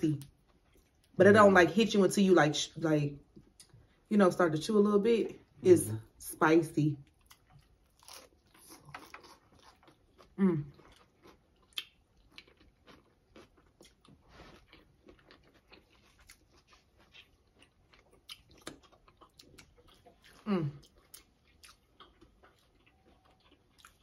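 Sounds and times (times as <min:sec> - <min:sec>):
crunchy chewing: 0:07.1 - 0:24.0.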